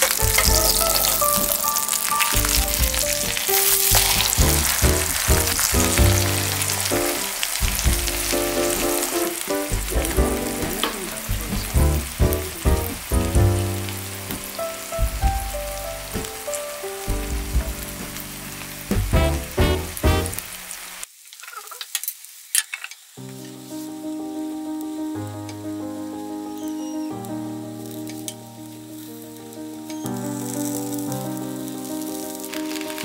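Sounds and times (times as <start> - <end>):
light melodic background music: 0.0 - 20.4
omelet sizzling in hot oil: 0.0 - 24.1, 27.8 - 33.0.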